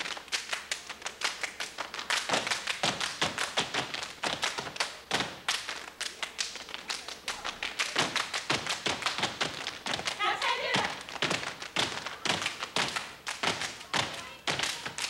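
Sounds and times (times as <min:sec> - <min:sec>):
hand claps: 0:00.0 - 0:15.0
shoes stomping on stage floor: 0:08.0 - 0:15.0.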